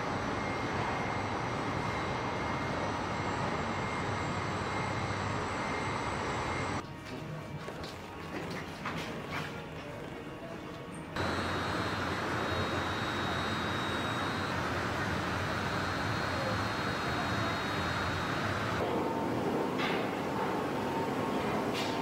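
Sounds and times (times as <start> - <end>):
faint high whine: 11.2 - 19.4
industrial machinery roar: 11.2 - 22.0.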